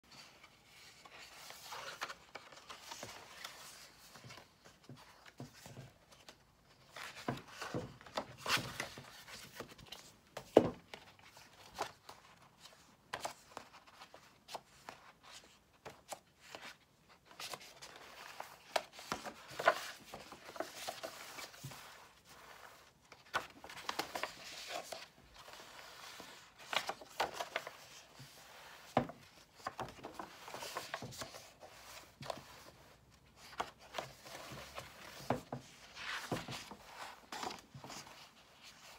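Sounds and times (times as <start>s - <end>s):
paper pages rustling: 0.1s - 38.9s.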